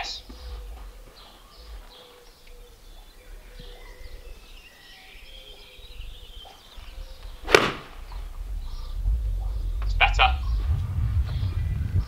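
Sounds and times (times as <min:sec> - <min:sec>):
birds chirping: 0:00.0 - 0:12.0
golf club striking ball: 0:07.4 - 0:08.1.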